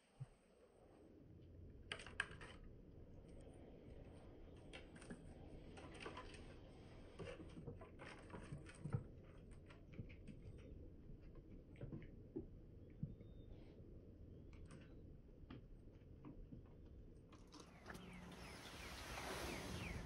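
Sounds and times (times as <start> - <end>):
low steady rumble: 17.5 - 20.0.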